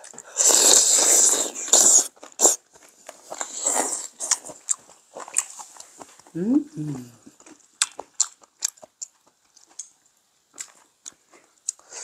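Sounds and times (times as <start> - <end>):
slurping noodles: 0.1 - 2.6, 3.2 - 4.6
chewing mouth clicks: 7.3 - 12.0.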